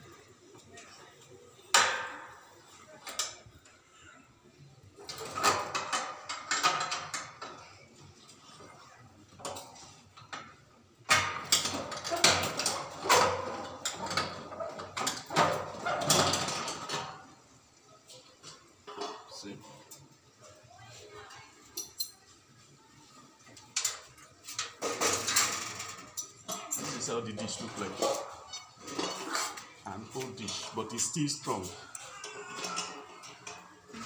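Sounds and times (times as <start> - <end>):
metal clattering and scraping: 23.8 - 34.0.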